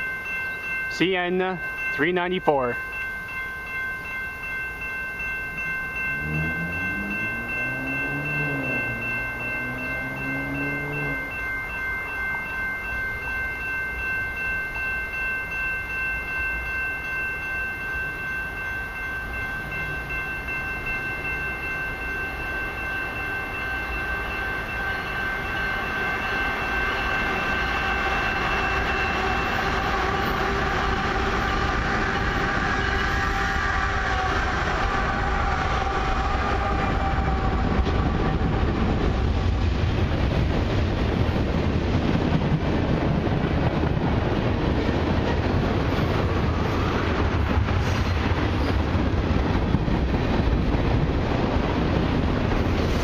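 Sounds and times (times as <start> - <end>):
diesel locomotives rumbling: 0.0 - 53.0
train wheels on rails: 0.0 - 53.0
pulsing warning tone: 2.8 - 38.8.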